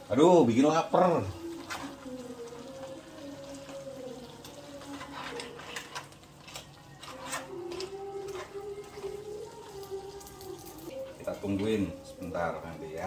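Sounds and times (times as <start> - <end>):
spatula scraping a pan: 4.7 - 9.8.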